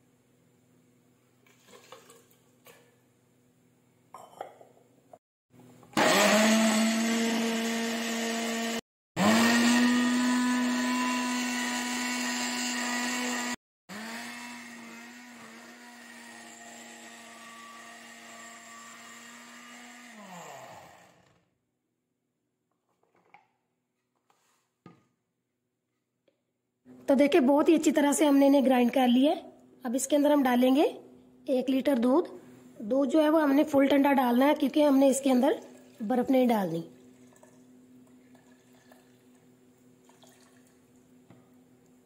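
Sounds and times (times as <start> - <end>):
blender motor grinding: 5.8 - 21.5.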